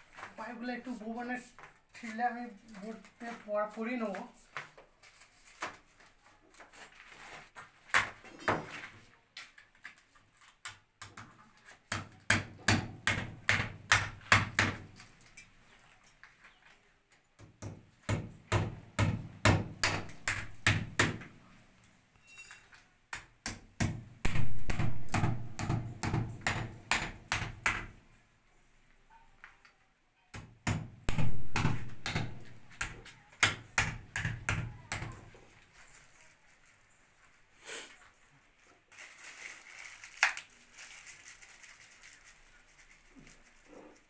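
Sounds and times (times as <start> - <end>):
hammer striking brickwork: 23.1 - 28.0, 30.4 - 35.2.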